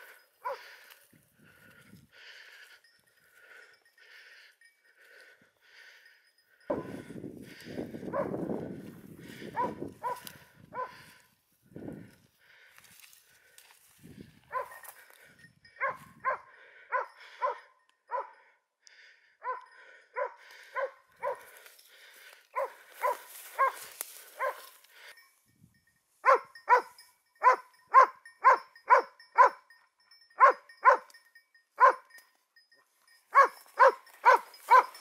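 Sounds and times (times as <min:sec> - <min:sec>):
dog barking: 0:00.4 - 0:00.8, 0:08.1 - 0:08.4, 0:09.3 - 0:11.2, 0:14.5 - 0:14.9, 0:15.8 - 0:18.5, 0:19.4 - 0:21.5, 0:22.5 - 0:24.7, 0:26.2 - 0:29.6, 0:30.4 - 0:31.1, 0:31.8 - 0:32.1, 0:33.3 - 0:35.0.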